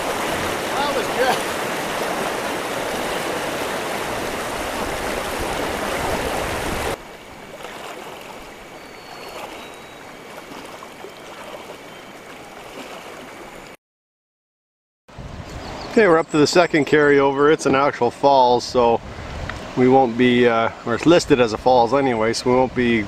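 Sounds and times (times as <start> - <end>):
river rapids rushing: 0.0 - 8.7, 9.3 - 11.8
soft flow of water: 0.0 - 13.8.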